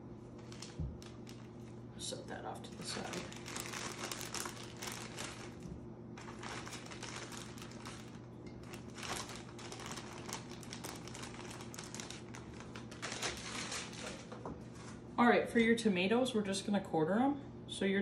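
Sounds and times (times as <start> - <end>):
low steady hum: 0.0 - 18.0
plastic bag crinkling: 0.3 - 1.8, 2.5 - 14.5.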